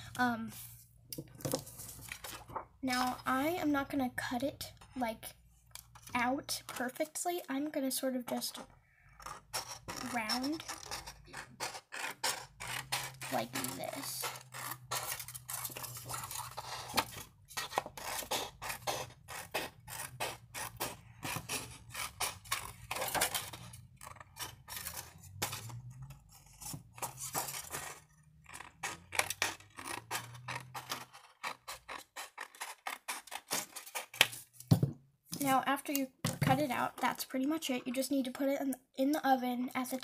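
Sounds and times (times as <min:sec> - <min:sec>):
scissors cutting plastic sheet: 0:09.2 - 0:34.7.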